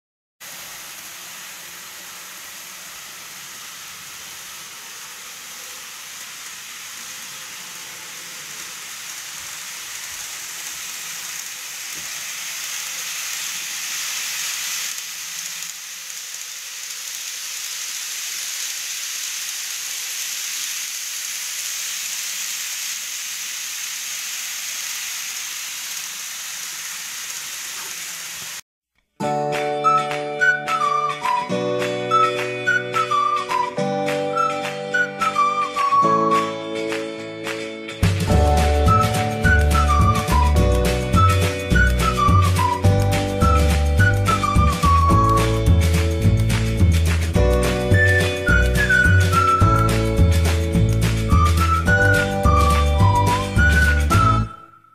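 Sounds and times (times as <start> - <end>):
model train rattling on track: 5.5 - 22.8.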